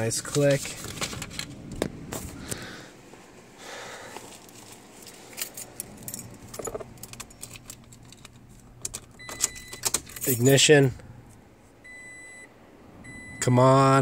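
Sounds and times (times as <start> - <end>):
handling clicks and rustling: 0.0 - 3.2, 4.1 - 11.0
car keys jangling: 4.5 - 10.8.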